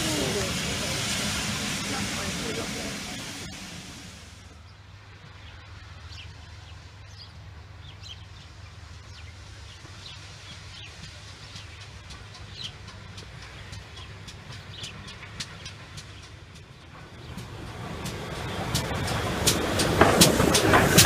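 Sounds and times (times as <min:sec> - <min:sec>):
steam locomotive rumble: 0:00.0 - 0:21.0
small birds chirping: 0:04.5 - 0:19.3.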